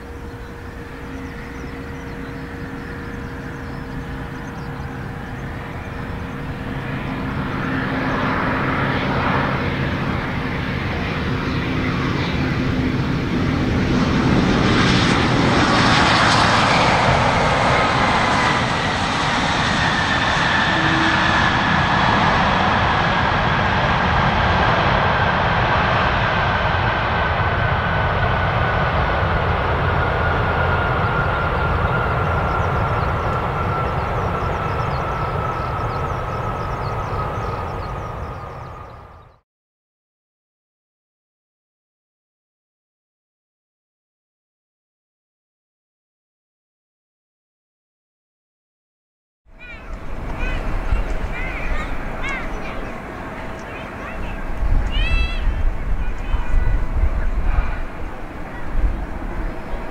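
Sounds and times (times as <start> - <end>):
engine whine winding down: 0.0 - 12.7, 29.3 - 39.3
jet engines landing: 0.0 - 39.4, 49.5 - 59.9.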